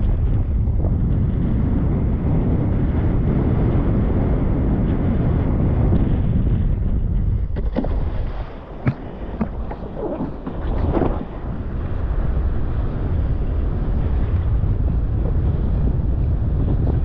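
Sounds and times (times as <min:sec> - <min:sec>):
wind buffeting microphone: 0:00.0 - 0:17.0.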